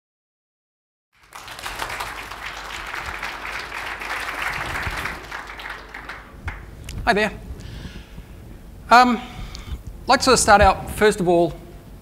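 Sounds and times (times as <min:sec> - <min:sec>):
audience applauding: 0:01.2 - 0:07.1.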